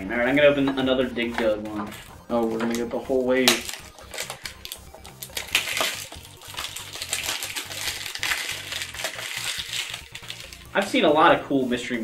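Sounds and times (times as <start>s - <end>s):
cardboard and foil crinkling: 1.9s - 10.9s.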